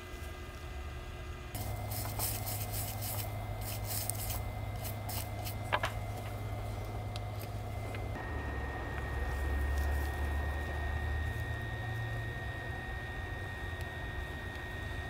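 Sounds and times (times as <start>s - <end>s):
steady low hum: 0.0s - 15.0s
cotton swab scrubbing circuit board: 1.6s - 5.8s.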